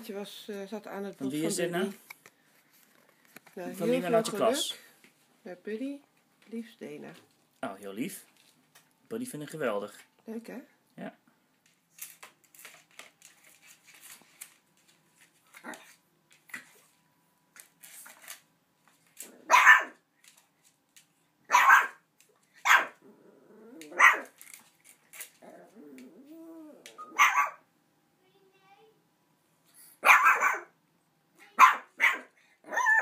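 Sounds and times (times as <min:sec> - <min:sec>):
puppy barking sharply: 0:19.4 - 0:20.0, 0:21.5 - 0:22.0, 0:22.6 - 0:23.0, 0:24.0 - 0:24.3, 0:27.1 - 0:27.7, 0:30.0 - 0:30.8, 0:31.5 - 0:33.0
puppy growling: 0:22.8 - 0:24.4, 0:25.3 - 0:27.2.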